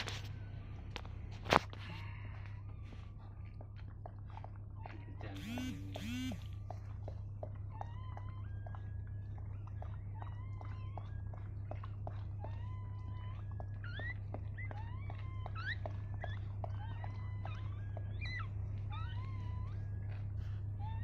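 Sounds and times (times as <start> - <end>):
steady low hum: 0.0 - 21.0
puppy squeaky cries: 7.7 - 21.0.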